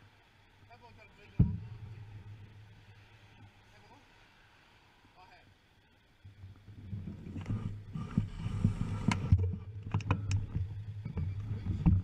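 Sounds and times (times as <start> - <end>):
bicycle rolling rumble: 6.2 - 12.0.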